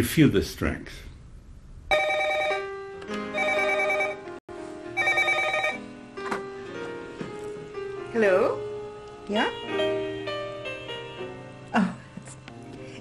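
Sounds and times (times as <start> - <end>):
telephone ringing: 1.9 - 4.3, 5.0 - 5.8.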